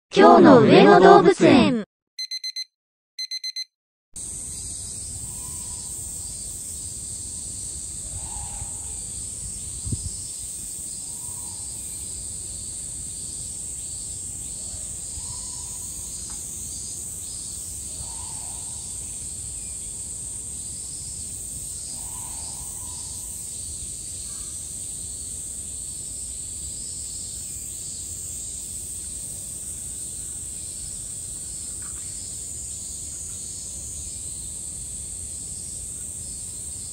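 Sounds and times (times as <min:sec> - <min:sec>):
electronic beep: 0:02.2 - 0:03.7
cicadas buzzing: 0:04.2 - 0:36.9.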